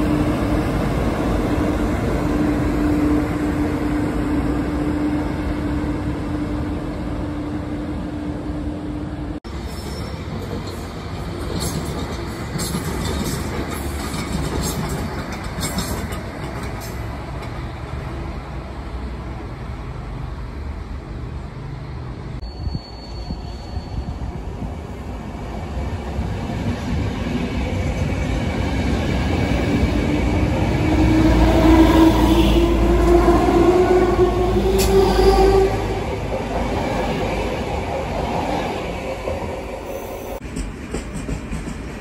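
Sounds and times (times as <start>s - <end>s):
train rumbling past: 0.0s - 42.0s
electric train whining: 26.9s - 41.6s.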